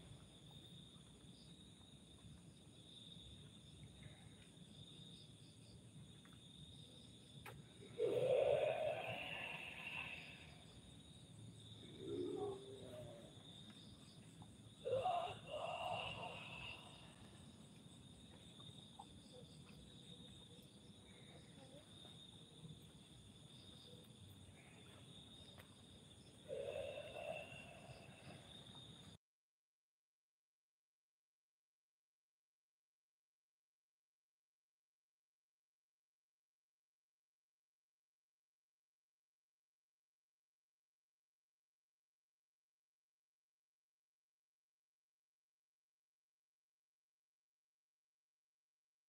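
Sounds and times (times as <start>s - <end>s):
crickets trilling: 0.0s - 29.2s.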